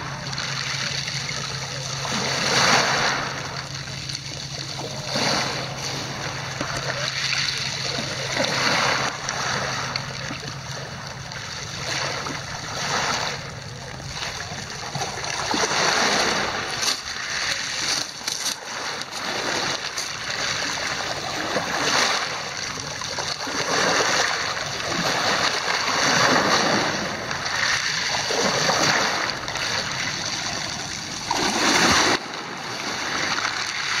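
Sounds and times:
waves washing over pebble beach: 0.0s - 34.0s.

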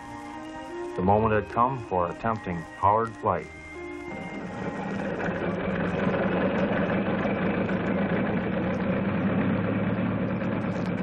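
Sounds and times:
piston engine droning: 3.4s - 11.0s.

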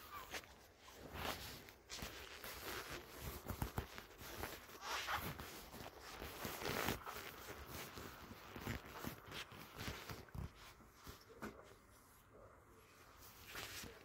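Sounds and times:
store background noise: 0.0s - 14.0s.

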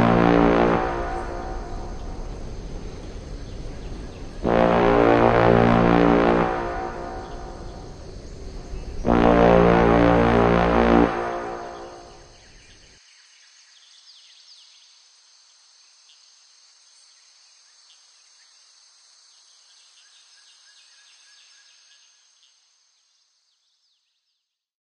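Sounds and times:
high insect drone: 0.0s - 13.4s.

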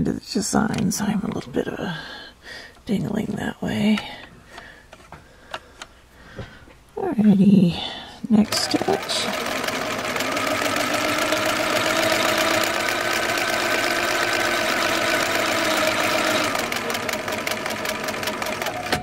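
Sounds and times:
sewing machine running: 8.4s - 19.0s.

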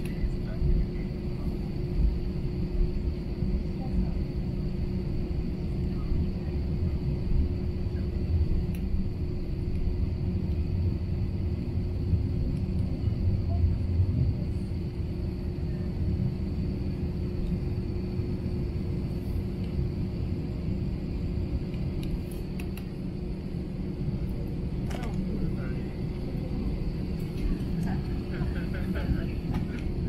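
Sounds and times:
aircraft cabin engine rumble: 0.0s - 30.0s
steady hum: 0.0s - 30.0s.

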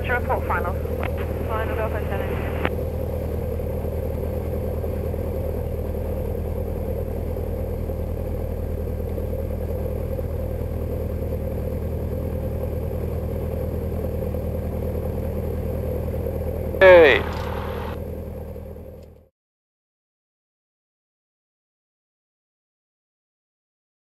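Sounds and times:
propeller plane engine droning: 0.0s - 19.2s.

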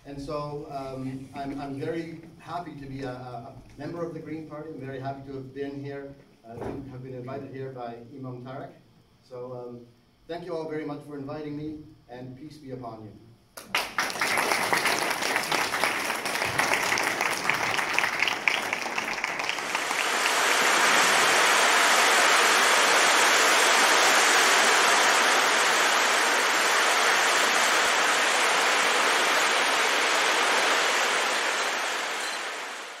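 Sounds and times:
audience applauding: 13.6s - 33.0s
surf from breaking waves: 15.3s - 33.0s.

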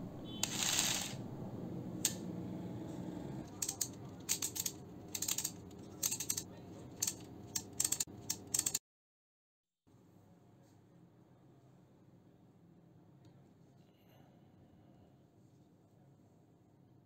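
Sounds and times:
ratchet clicking: 3.6s - 6.4s, 7.0s - 8.8s.

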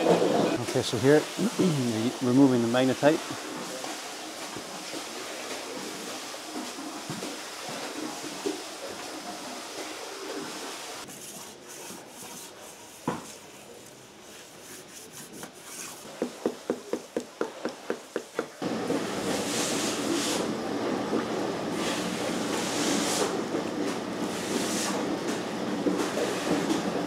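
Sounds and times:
water sloshing and splashing: 0.0s - 12.6s.

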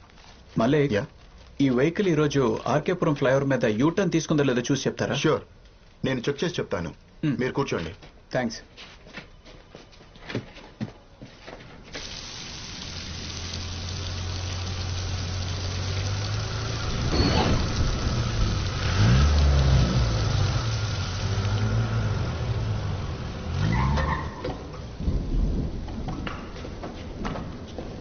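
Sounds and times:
heavy rain hiss: 11.9s - 26.9s
car engine revving: 12.9s - 25.0s.

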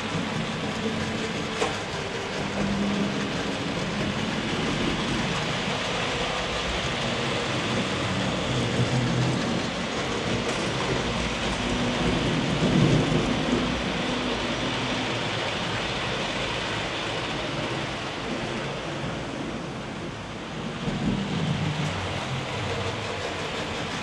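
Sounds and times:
model train wheels rumbling on track: 0.0s - 24.0s.

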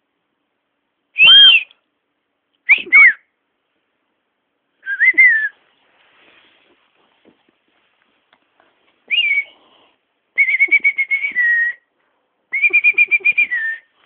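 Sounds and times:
person whistling short notes: 1.2s - 1.8s, 2.7s - 3.2s, 4.8s - 5.6s, 9.1s - 9.6s, 10.4s - 11.9s, 12.5s - 14.0s.

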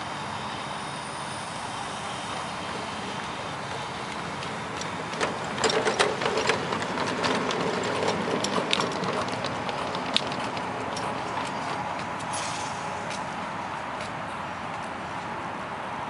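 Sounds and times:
steam locomotive hissing: 0.0s - 6.3s, 9.0s - 13.9s
clicks and clanks of wheels on track: 0.1s - 16.0s.

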